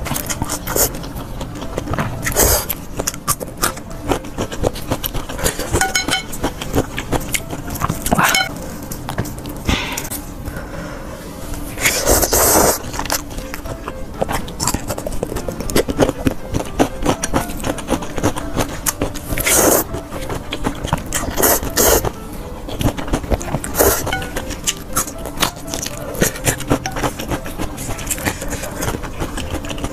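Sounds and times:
chewing: 0:00.0 - 0:10.2, 0:11.8 - 0:29.9
slurping noodles: 0:11.8 - 0:13.1.

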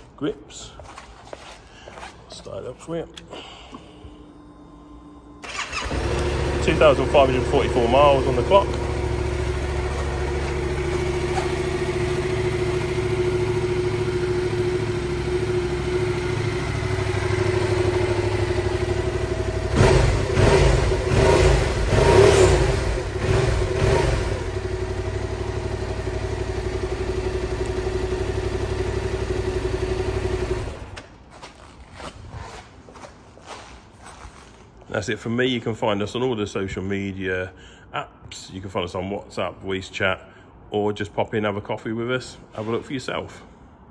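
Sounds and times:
motorcycle throttle blips: 0:05.2 - 0:33.0
motorcycle engine idling: 0:05.4 - 0:31.0.

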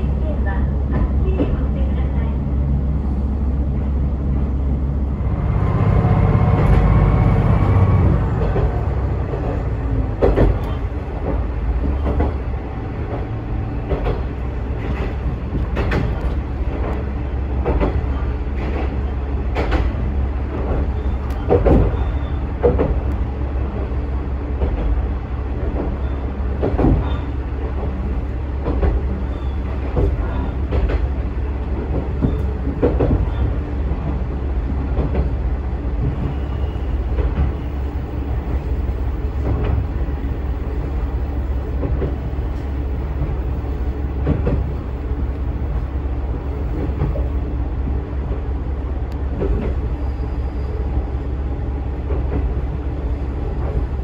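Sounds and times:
railcar engine drone: 0:00.0 - 0:54.0
wheels clacking over rail joints: 0:06.4 - 0:23.2, 0:24.6 - 0:34.2.

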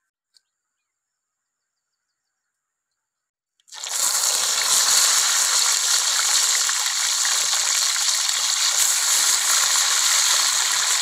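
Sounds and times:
oil sizzling with crackles: 0:03.7 - 0:11.0.

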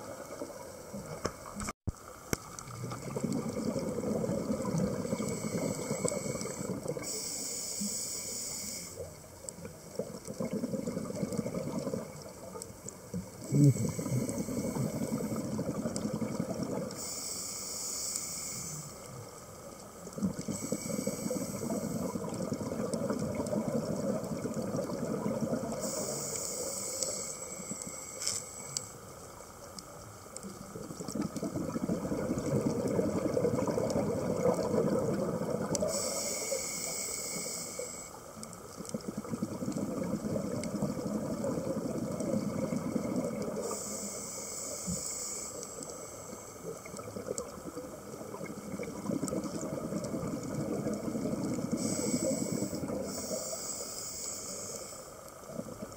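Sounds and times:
exhaled bubbles underwater: 0:02.4 - 0:07.2, 0:09.5 - 0:17.1, 0:20.0 - 0:27.9, 0:30.4 - 0:36.5, 0:37.8 - 0:44.3, 0:46.6 - 0:53.6, 0:55.3 - 0:55.9
regulator hissing inhale: 0:05.0 - 0:09.2, 0:13.4 - 0:15.6, 0:16.9 - 0:19.3, 0:20.4 - 0:22.4, 0:25.7 - 0:29.0, 0:35.8 - 0:38.3, 0:43.6 - 0:46.8, 0:51.7 - 0:55.3.

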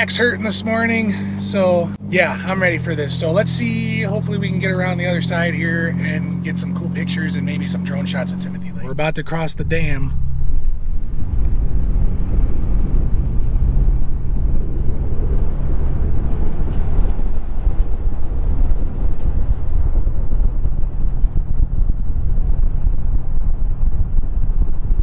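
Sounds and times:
car engine and tyres rumbling: 0:00.0 - 0:25.0
wind buffeting microphone: 0:08.6 - 0:25.0.

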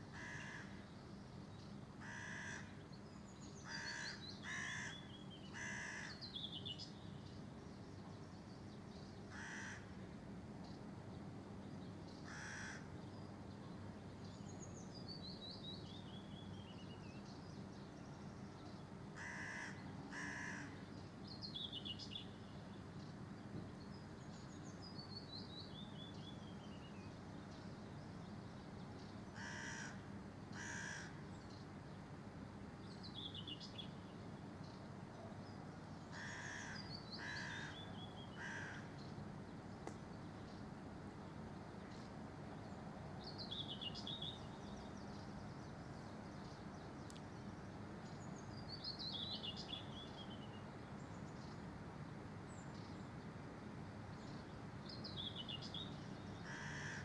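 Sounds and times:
crow cawing: 0:00.2 - 0:00.8, 0:02.0 - 0:02.7, 0:03.6 - 0:05.0, 0:05.6 - 0:06.2, 0:09.3 - 0:09.9, 0:12.3 - 0:12.9, 0:19.2 - 0:20.8, 0:29.4 - 0:30.0, 0:30.6 - 0:31.2, 0:36.1 - 0:37.8, 0:38.4 - 0:38.9, 0:56.4 - 0:57.0.

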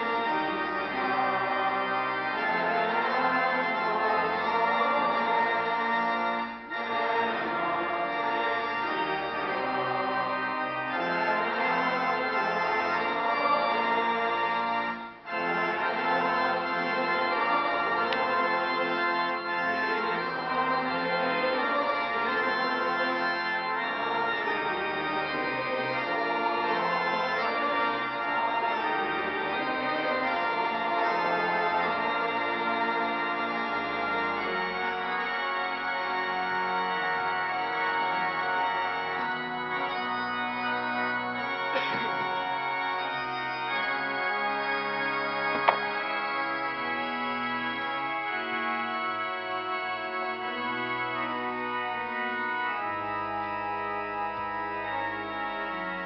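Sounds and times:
sustained organ chords: 0:00.0 - 0:56.0.

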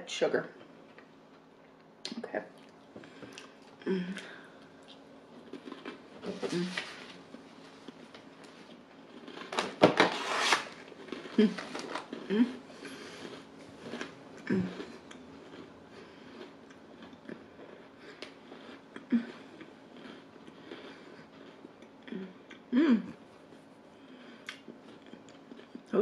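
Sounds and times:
closed-mouth humming: 0:01.3 - 0:08.9
chewing crunchy biscuits: 0:02.5 - 0:09.8, 0:10.8 - 0:26.0.

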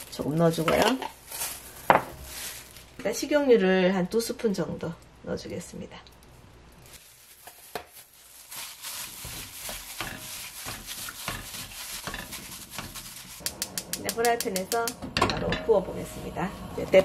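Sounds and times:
wet rubbing and stirring of chicken: 0:06.4 - 0:14.6.

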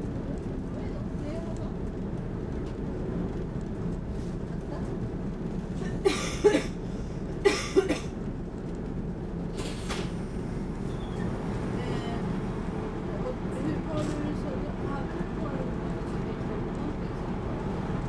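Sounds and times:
train carriage hum: 0:00.0 - 0:18.0
passenger coughing: 0:05.8 - 0:08.2.

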